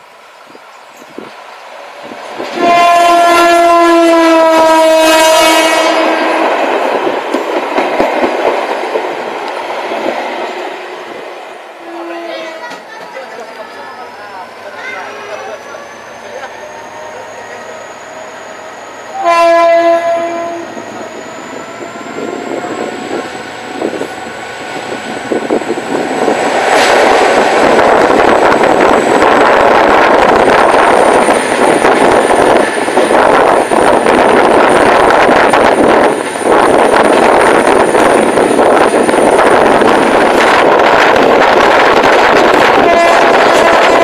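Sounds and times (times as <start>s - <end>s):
train rushing past on rails: 0.0s - 44.0s
train horn blast: 2.5s - 6.4s, 11.8s - 12.7s, 19.1s - 21.0s, 42.7s - 44.0s.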